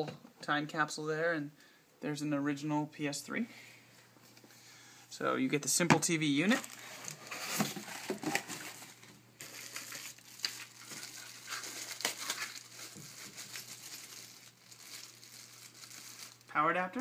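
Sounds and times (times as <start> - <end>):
cardboard packaging handled: 6.4 - 16.5
plastic bag crinkling: 6.4 - 16.5.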